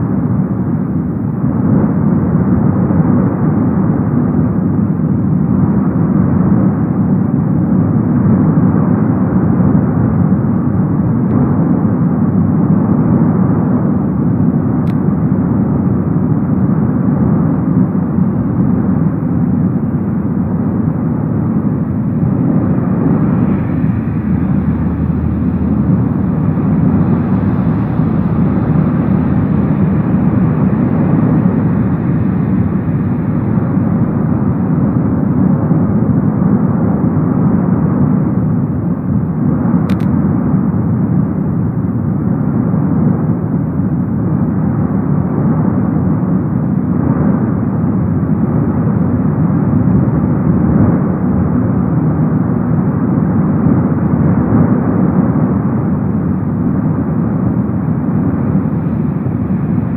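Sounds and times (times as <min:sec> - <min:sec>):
volcano lava fountain roaring: 0:15.5 - 0:38.8
sharp click: 0:39.9 - 0:40.2.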